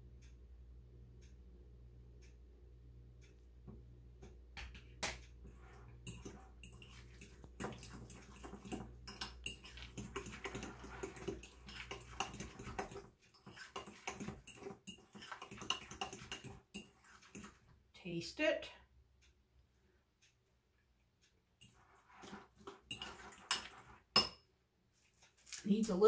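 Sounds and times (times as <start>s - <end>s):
spoon stirring thick salad: 5.4s - 17.8s, 21.6s - 24.4s
wet squelching: 6.0s - 17.7s
spoon clinking on glass: 6.1s - 17.0s.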